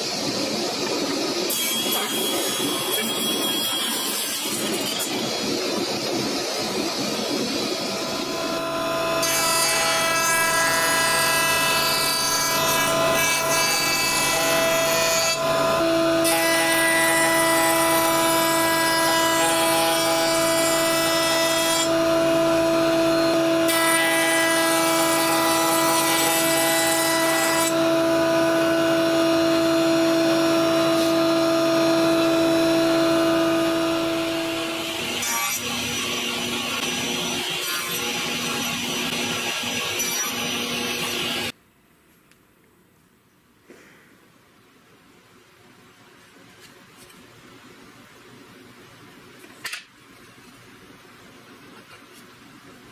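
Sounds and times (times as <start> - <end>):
router bit cutting wood: 0.0 - 41.5.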